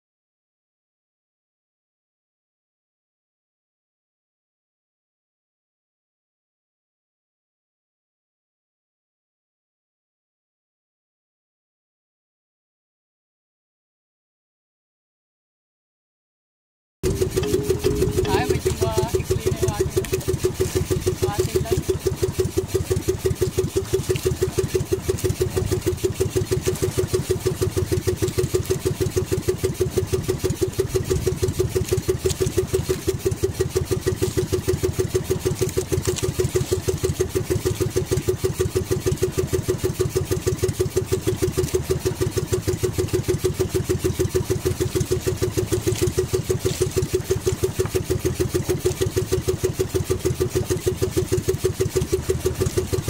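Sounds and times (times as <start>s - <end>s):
boat engine putter: 17.0s - 53.0s.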